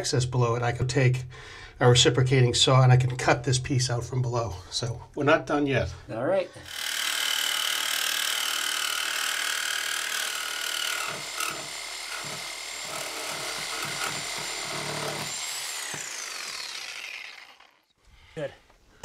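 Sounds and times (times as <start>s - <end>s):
reciprocating saw cutting metal pipe: 6.6s - 17.9s.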